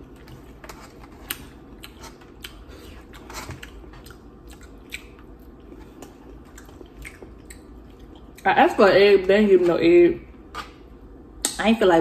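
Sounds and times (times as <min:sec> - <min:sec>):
chewing and mouth smacks: 0:00.0 - 0:08.5.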